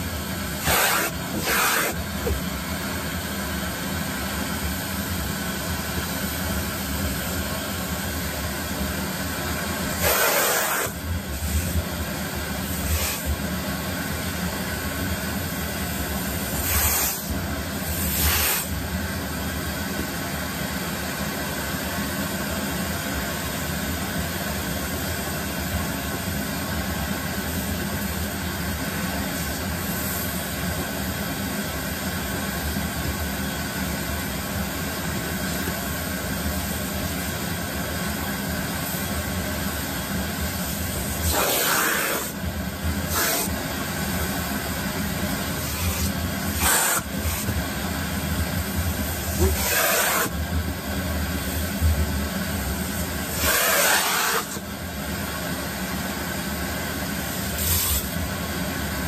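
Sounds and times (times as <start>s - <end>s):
vacuum cleaner sucking hair: 0.0s - 19.5s, 35.0s - 58.4s.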